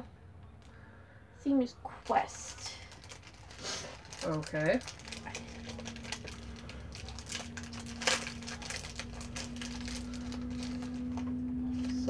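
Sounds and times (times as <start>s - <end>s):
steady low hum: 0.0s - 12.0s
packaging rustling and crinkling: 2.0s - 12.0s.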